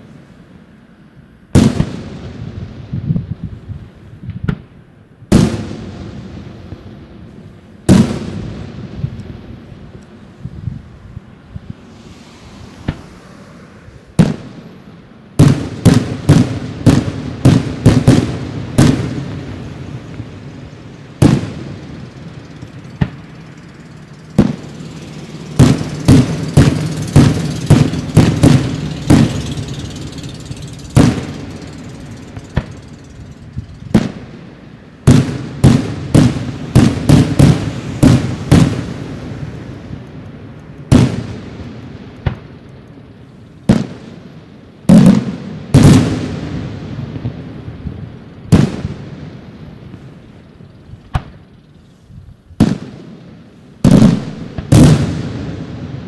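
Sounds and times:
fireworks booming: 1.5 - 56.0.

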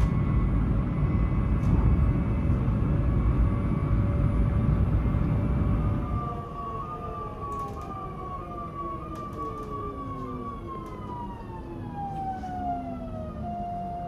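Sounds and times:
low train rumble: 0.0 - 14.0
electric train motors whining: 3.7 - 12.6.

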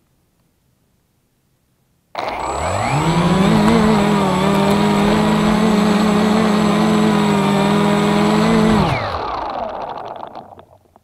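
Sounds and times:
quadcopter motors buzzing: 2.2 - 10.7.

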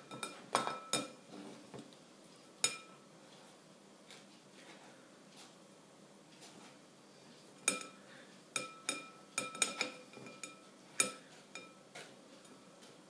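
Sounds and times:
metal spoon clinking on sieve: 0.0 - 1.2, 2.6 - 3.0, 7.6 - 8.0, 8.6 - 11.8.

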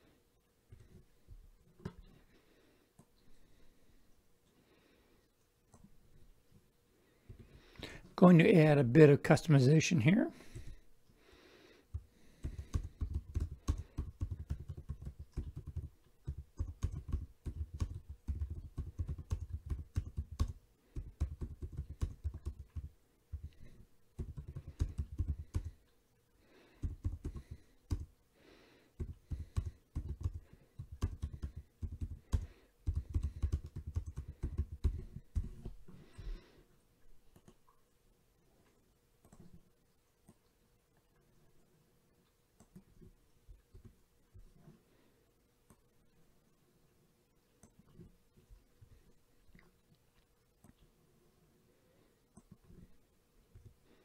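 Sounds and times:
typing on computer keyboard: 12.4 - 25.8, 26.8 - 28.1, 29.0 - 35.7.

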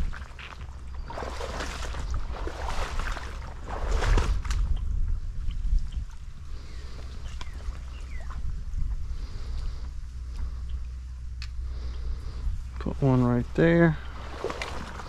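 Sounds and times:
wind rumbling on microphone: 0.0 - 15.0
net swishing and splashing in water: 1.1 - 4.6, 14.2 - 15.0.

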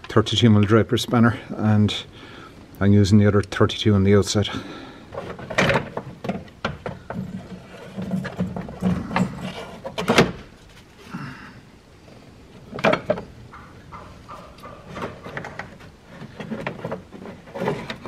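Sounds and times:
cooling fan clunking and scraping: 12.6 - 18.0.

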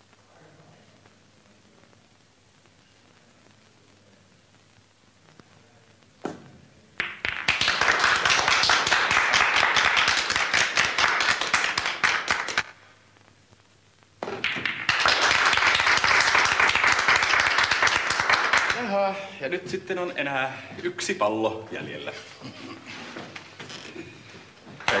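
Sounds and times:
onlookers applauding: 7.0 - 12.7, 14.4 - 19.3.

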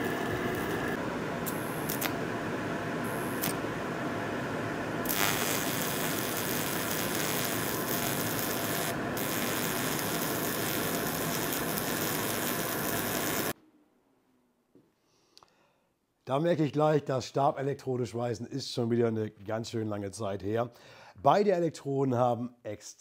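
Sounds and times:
welding arc hissing: 0.0 - 2.2, 3.0 - 3.6, 5.0 - 13.6
extractor fan rushing: 0.0 - 13.5.

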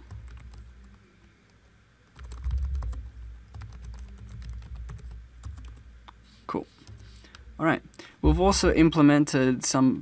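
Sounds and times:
computer keyboard typing: 0.0 - 1.0, 2.1 - 5.8.

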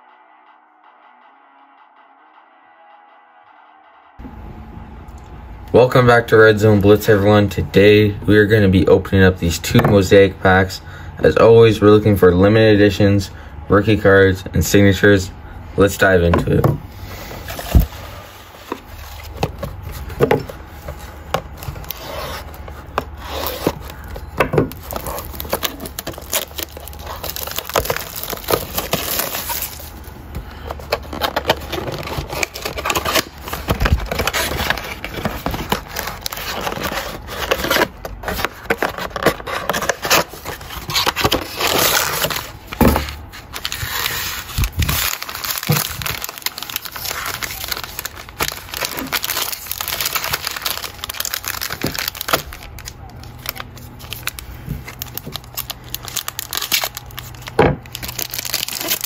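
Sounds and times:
foil packs rustling: 16.5 - 59.0
plastic wrap and cardboard tearing: 17.1 - 59.0.

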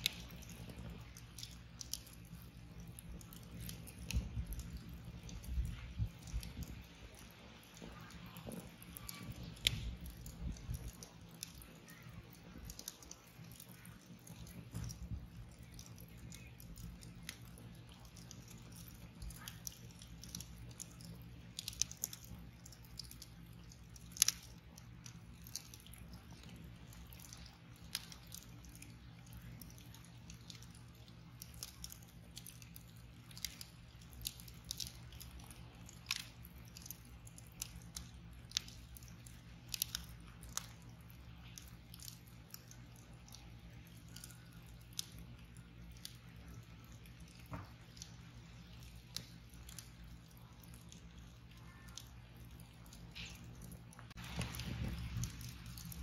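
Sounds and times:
low steady hum: 0.0 - 56.0
wood fire crackling and popping: 0.0 - 56.0.

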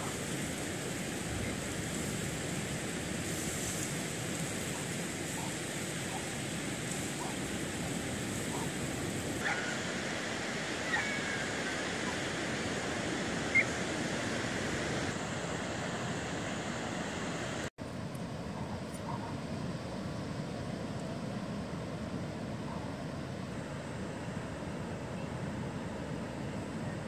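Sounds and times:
surf breaking on beach: 0.0 - 17.7.

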